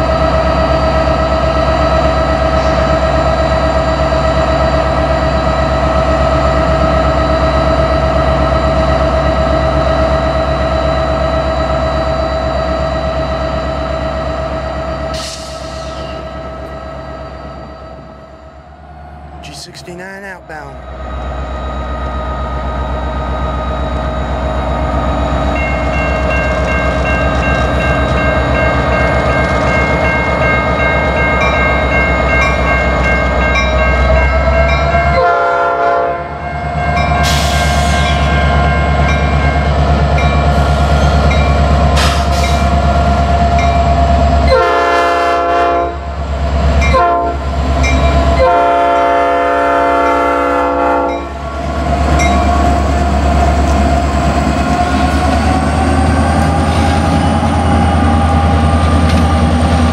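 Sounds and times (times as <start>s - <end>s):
diesel locomotive engine drone: 0.0s - 59.9s
train horn blasts: 35.1s - 36.4s, 44.5s - 46.1s, 46.9s - 47.5s, 48.4s - 51.3s.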